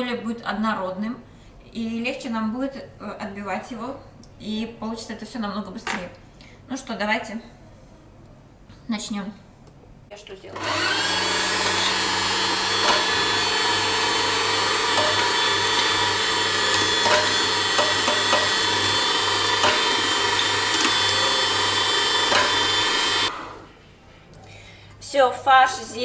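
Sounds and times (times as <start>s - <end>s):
electric meat grinder running: 10.6s - 23.6s.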